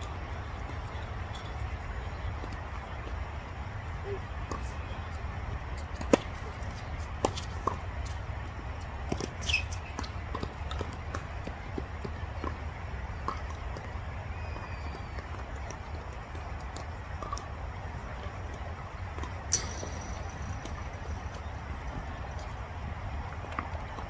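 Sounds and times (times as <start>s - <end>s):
shoe squeak: 9.4s - 10.1s.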